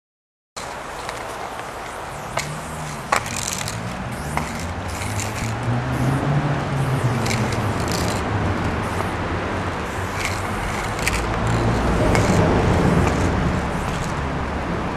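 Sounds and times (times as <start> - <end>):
sharp clicks: 0.6 - 14.5
low rumble of traffic: 0.6 - 14.9
spray paint can hissing: 0.6 - 14.9.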